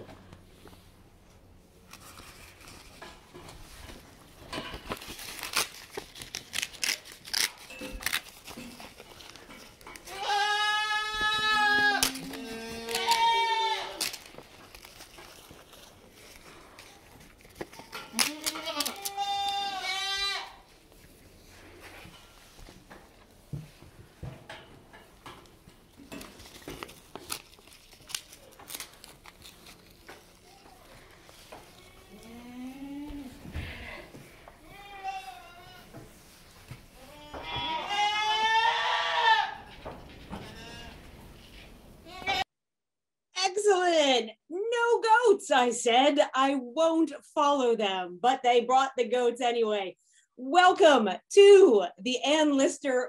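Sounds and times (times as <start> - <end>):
goats rustling on straw: 0.4 - 24.2, 25.7 - 42.4
paper sign crinkling: 4.5 - 10.1, 11.1 - 19.8, 26.0 - 32.3
goats bleating: 10.1 - 14.1, 37.0 - 39.7
hoof clicks and knocks: 39.6 - 41.7.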